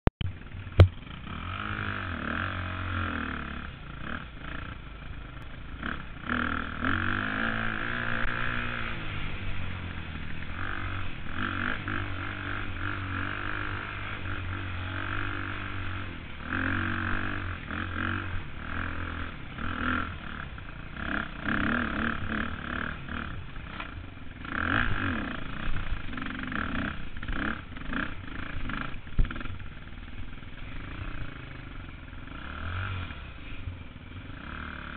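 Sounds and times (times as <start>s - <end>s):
dirt bike engine revving: 0.4s - 34.9s
sharp knock: 0.8s - 1.0s.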